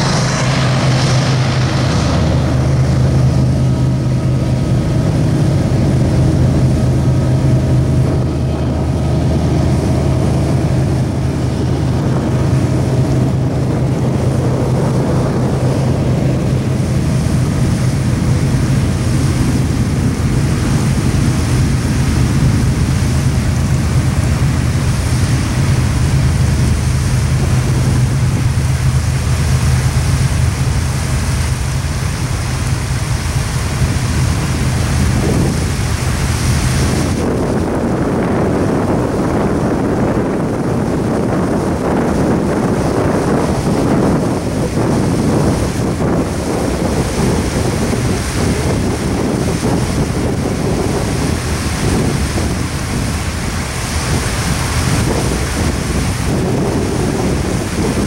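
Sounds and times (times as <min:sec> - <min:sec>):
small waterfall rushing: 0:00.0 - 0:00.2
low steady hum: 0:00.0 - 0:58.0
train rumbling on rails: 0:00.0 - 0:58.0
wind buffeting microphone: 0:00.0 - 0:58.0.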